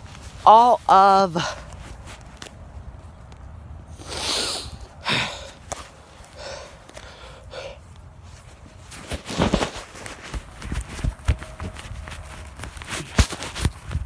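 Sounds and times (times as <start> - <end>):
rustling: 0.0 - 4.1, 5.4 - 14.0
person breathing hard: 3.9 - 8.2.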